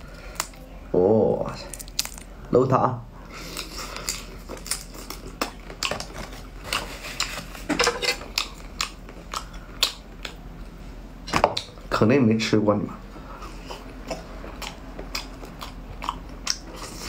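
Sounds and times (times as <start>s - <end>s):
close chewing with wet crunches: 13.3s - 17.0s.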